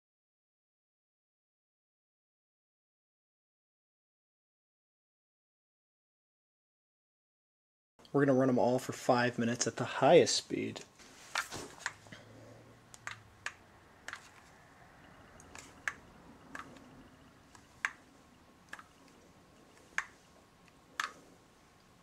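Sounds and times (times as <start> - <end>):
infrared thermometer clicking: 10.8 - 12.0, 12.8 - 22.0.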